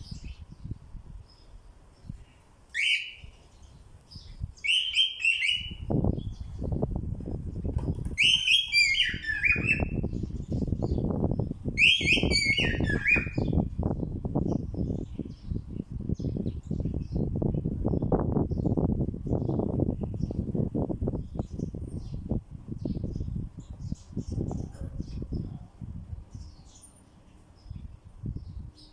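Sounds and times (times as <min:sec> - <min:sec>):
cockatiel whistled chirps: 0:08.2 - 0:10.0, 0:11.8 - 0:13.5.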